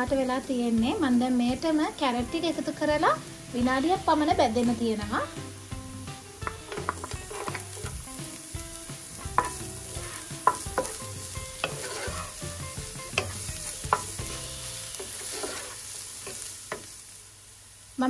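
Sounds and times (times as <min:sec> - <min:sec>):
vegetables sizzling in hot oil: 0:00.0 - 0:18.0
spatula knocking against pan: 0:06.4 - 0:08.0, 0:09.2 - 0:12.2, 0:12.8 - 0:14.3
wooden spatula scraping: 0:06.4 - 0:08.0, 0:09.1 - 0:16.9.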